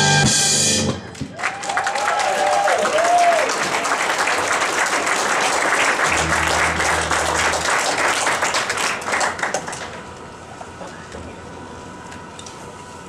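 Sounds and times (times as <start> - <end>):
audience applauding: 1.1 - 10.2
low steady hum: 5.9 - 13.0.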